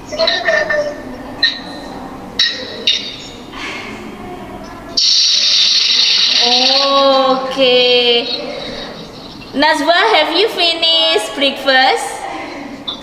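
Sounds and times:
loud steady hissing: 5.0 - 7.7.

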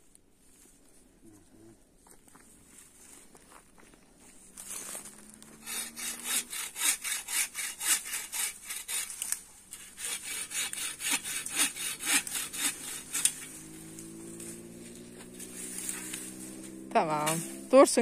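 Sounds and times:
hand saw cutting wood: 5.4 - 18.0.

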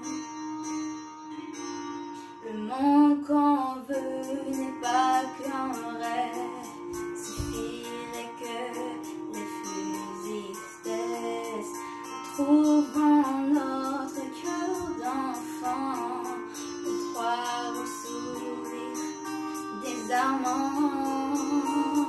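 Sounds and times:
instrumental backing music: 0.0 - 22.0
girl singing: 2.4 - 22.0.

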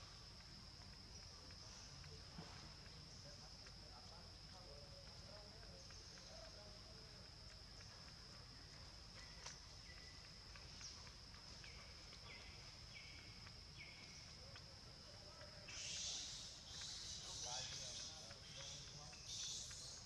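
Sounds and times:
high-pitched insect drone: 15.6 - 20.0.

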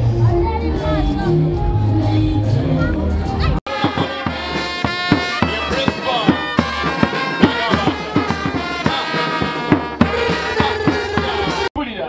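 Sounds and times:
brass band with trombones: 3.6 - 11.7
steady drumbeat: 3.7 - 11.7.

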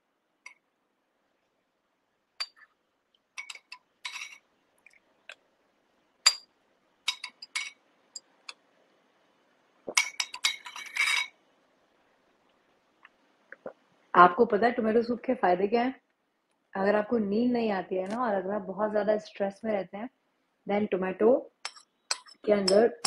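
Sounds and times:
spoon clinking ceramic bowl: 2.4 - 2.7, 3.4 - 4.4, 6.2 - 6.5, 7.1 - 8.6, 9.9 - 11.4, 21.6 - 23.0
spoon scraping bowl: 3.4 - 4.4, 9.9 - 11.4.

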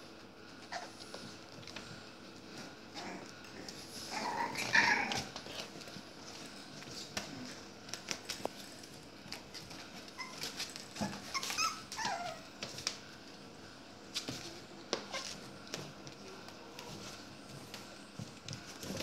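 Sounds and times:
paws tapping and scraping: 0.1 - 13.4, 14.1 - 19.0
puppy yips: 10.2 - 12.4
puppies squealing and whimpering: 10.2 - 12.5.

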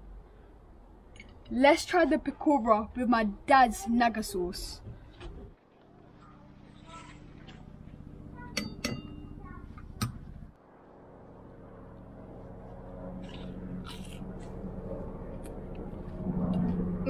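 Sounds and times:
low steady hum: 0.0 - 17.0
crunchy food being chewed: 13.2 - 14.6.

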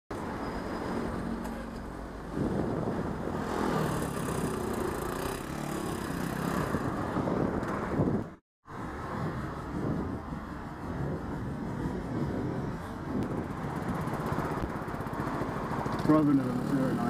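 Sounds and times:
road and wind noise: 0.1 - 17.0
scooter engine: 3.6 - 7.0, 13.3 - 17.0.

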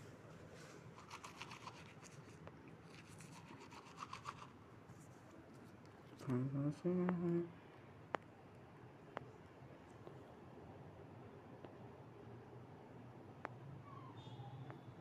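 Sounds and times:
faint rubbing and scratching: 0.4 - 6.3
person humming: 6.2 - 7.6.

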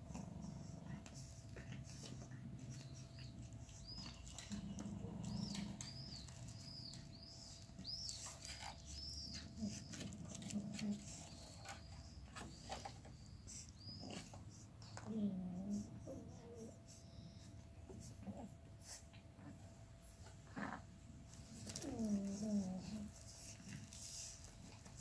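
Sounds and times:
dog grunting: 4.3 - 6.3.

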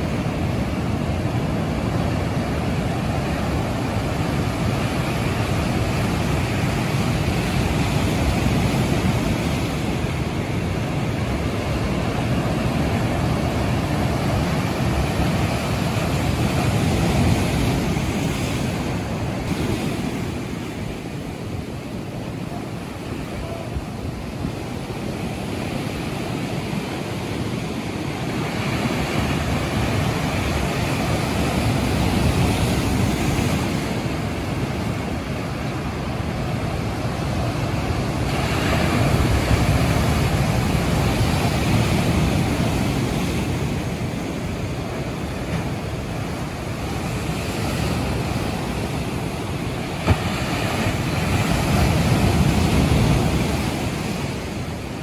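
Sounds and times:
sea surf breaking over rocks: 0.0 - 55.0.

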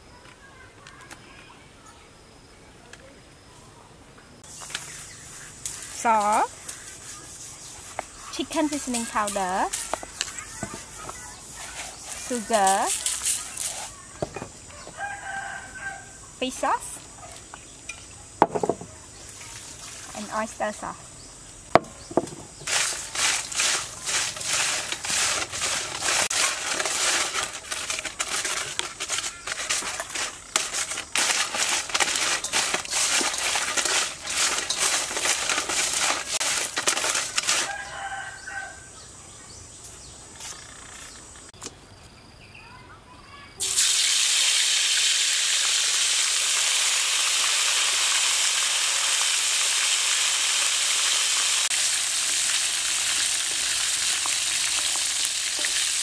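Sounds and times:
hot oil sizzling: 4.4 - 14.4, 21.5 - 38.2, 43.6 - 56.0
shells clattering in metal bowl: 11.7 - 13.9, 22.6 - 37.8
rooster crowing: 14.7 - 16.3, 37.4 - 39.0.

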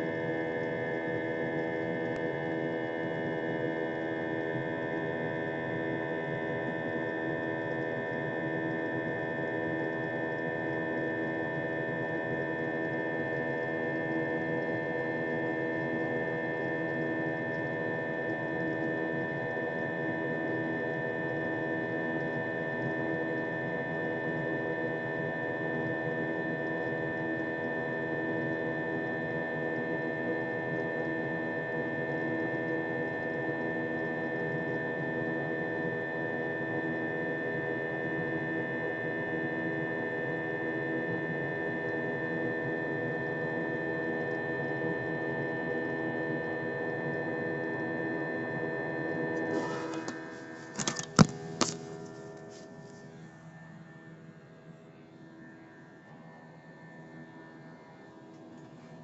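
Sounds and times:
jet airliner cabin drone: 48.3 - 54.0
sharp knock: 49.6 - 51.8.

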